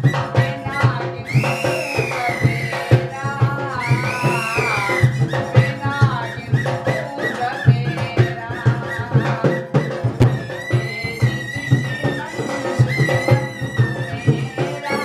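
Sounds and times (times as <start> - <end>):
hand drum beaten in quick rhythm: 0.0 - 15.0
reedy pipe melody: 8.9 - 15.0.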